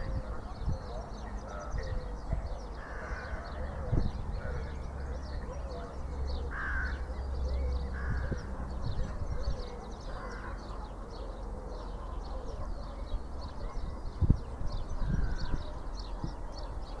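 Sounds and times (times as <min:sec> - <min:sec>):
crow-like bird calls: 0:02.7 - 0:04.9, 0:05.8 - 0:07.2, 0:07.9 - 0:08.5, 0:10.0 - 0:10.8, 0:15.0 - 0:16.1.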